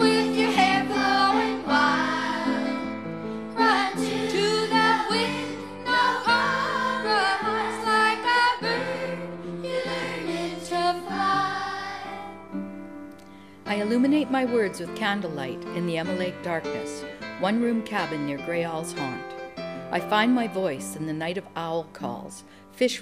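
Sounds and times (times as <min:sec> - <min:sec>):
person singing: 0:00.0 - 0:12.2.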